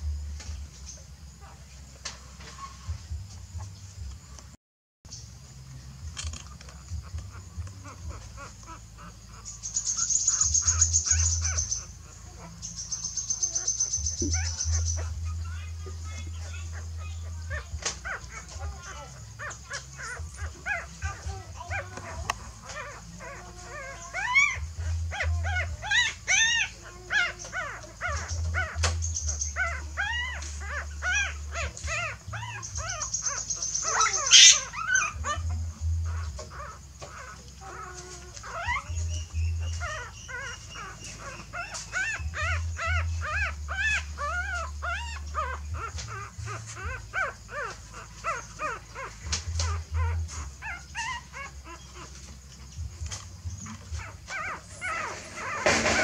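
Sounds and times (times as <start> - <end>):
puppies whimpering and squeaking: 0.0 - 4.5, 6.0 - 56.0
sharp loud noise: 55.0 - 56.0.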